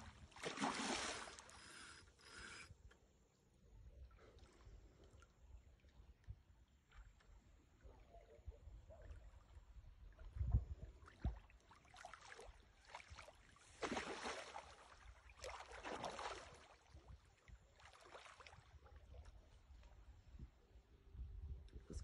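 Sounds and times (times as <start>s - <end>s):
water splashing and sloshing: 0.0s - 1.9s, 4.0s - 20.5s.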